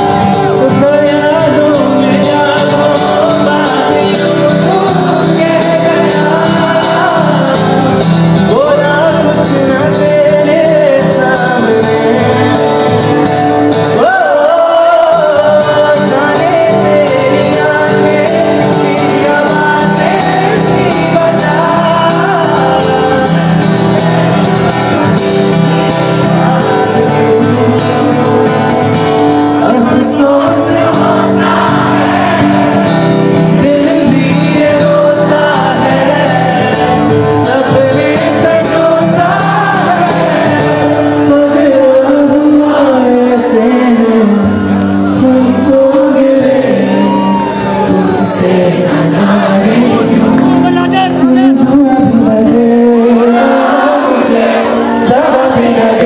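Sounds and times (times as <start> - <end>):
guitar: 0.0 - 56.0
person singing: 0.0 - 56.0.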